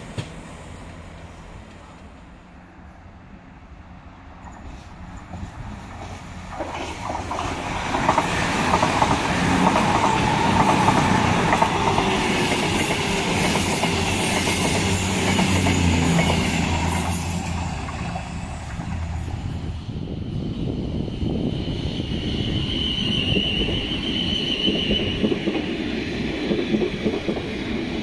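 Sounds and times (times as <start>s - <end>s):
diesel train engines running: 0.0s - 28.0s
train wheels clattering over rails: 4.5s - 19.2s.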